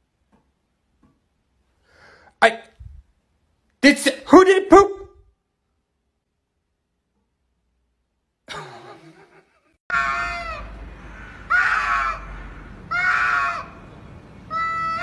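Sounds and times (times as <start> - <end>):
cats yowling: 9.9 - 13.8, 14.5 - 15.0.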